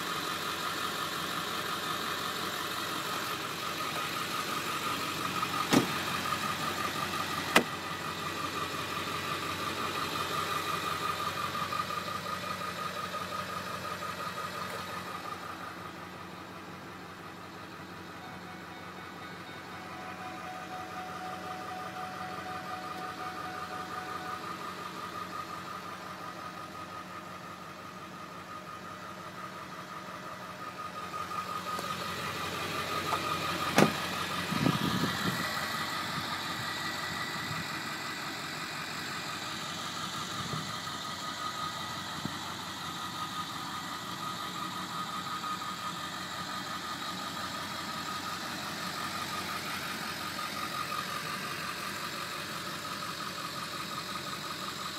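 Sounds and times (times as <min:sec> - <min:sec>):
car engine idling: 0:00.0 - 0:54.9
low thump: 0:05.7 - 0:06.0, 0:33.7 - 0:34.0.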